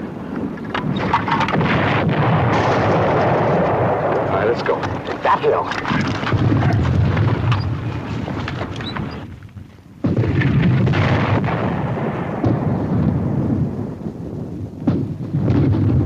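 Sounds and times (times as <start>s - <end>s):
mortar shells exploding: 0.8s - 8.5s, 10.0s - 14.0s
gunshots cracking: 0.8s - 8.7s, 10.0s - 13.2s.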